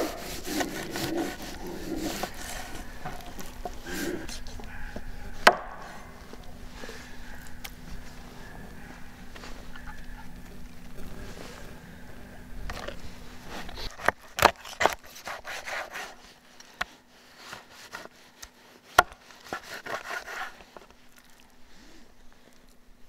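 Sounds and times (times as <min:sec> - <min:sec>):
knife scraping: 0:00.0 - 0:10.3, 0:12.8 - 0:20.9.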